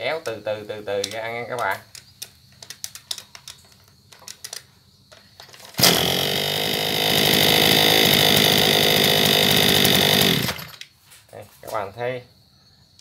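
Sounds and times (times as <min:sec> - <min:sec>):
recoil starter clicks: 0:01.0 - 0:10.9
brush cutter engine running: 0:05.6 - 0:10.8.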